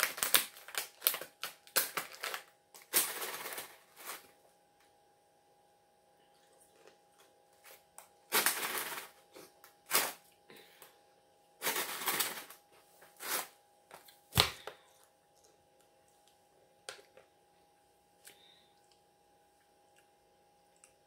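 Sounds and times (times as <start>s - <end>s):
plastic bottle crinkling: 0.0s - 4.3s.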